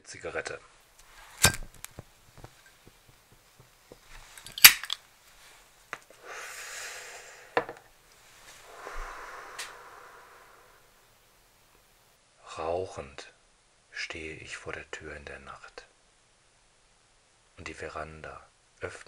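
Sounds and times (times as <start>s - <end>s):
breathy smoking hiss: 5.2s - 12.1s.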